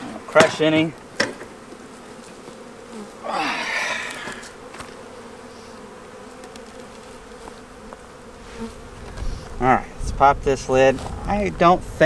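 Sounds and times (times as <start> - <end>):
honeybees buzzing: 0.0 - 12.0
wooden hive box handled: 4.0 - 9.6.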